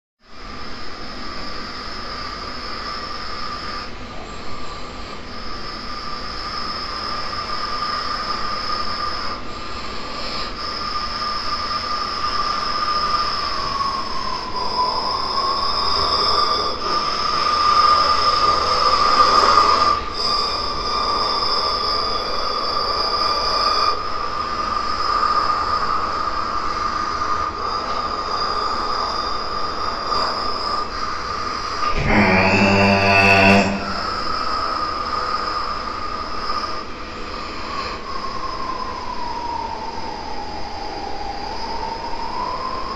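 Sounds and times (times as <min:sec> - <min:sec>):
low horn blast: 0:31.8 - 0:34.4.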